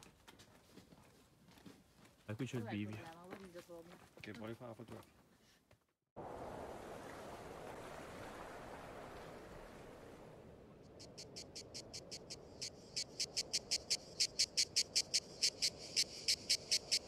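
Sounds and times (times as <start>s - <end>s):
insect chirping: 10.9s - 17.0s.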